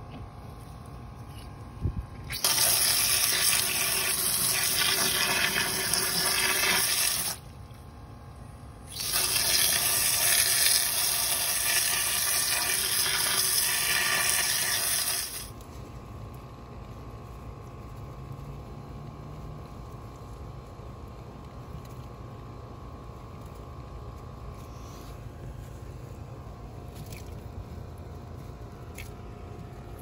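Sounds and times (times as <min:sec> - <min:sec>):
hose jet of water into mud: 0:02.3 - 0:07.4, 0:08.9 - 0:15.5.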